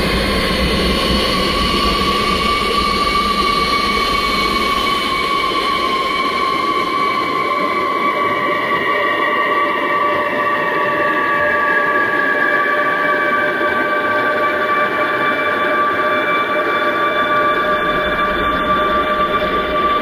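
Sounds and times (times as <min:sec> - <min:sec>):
held drone tones: 0:16.3 - 0:20.0.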